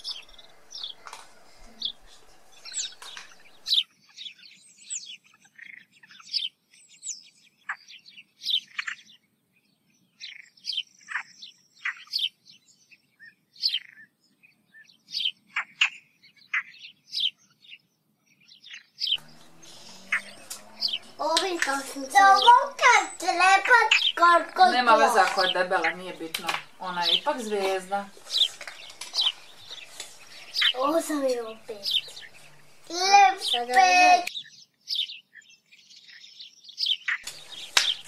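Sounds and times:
small bird chirping: 0:00.0 - 0:38.0.

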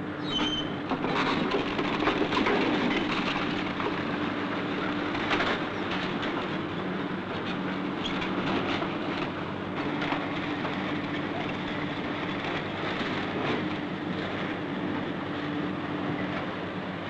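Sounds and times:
heavy machine engine droning: 0:00.0 - 0:17.0
machine clatter: 0:00.9 - 0:04.3.

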